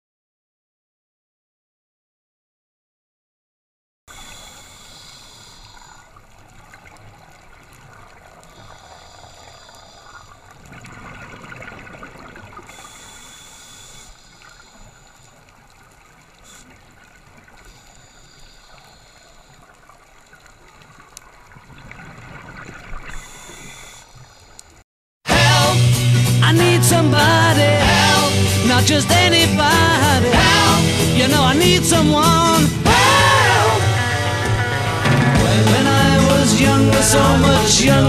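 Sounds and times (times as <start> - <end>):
regulator hissing on inhalation: 4.1 - 6.2, 8.4 - 10.5, 12.7 - 15.4, 17.6 - 19.7, 23.1 - 24.6.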